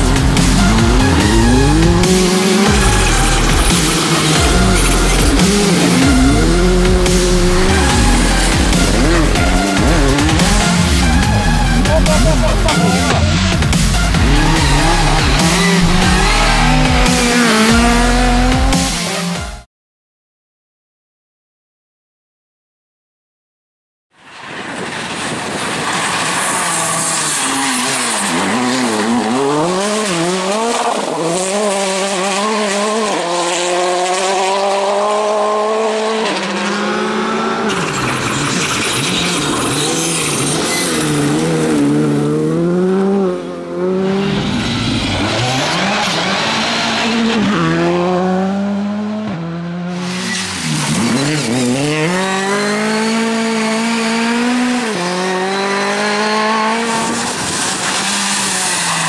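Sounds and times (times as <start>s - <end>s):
rally car engines revving: 0.0s - 19.6s, 24.3s - 59.0s
gravel hissing under tyres: 24.3s - 28.6s, 57.0s - 59.0s.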